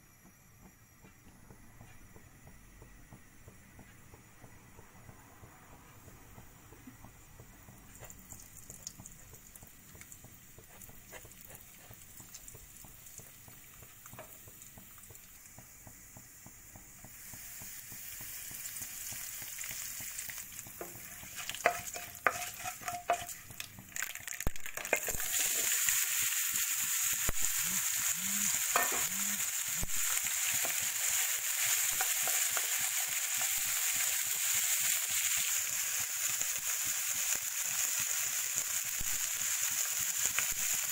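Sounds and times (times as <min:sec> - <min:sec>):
oil sizzling in a pan: 0:06.0 - 0:40.9
beans sizzling in hot oil: 0:07.7 - 0:40.9
mustard seeds popping: 0:20.4 - 0:25.7.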